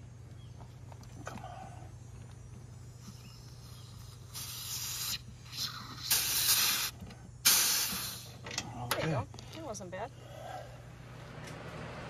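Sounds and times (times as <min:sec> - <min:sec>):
refrigerant hissing in spurts: 0:02.8 - 0:08.4.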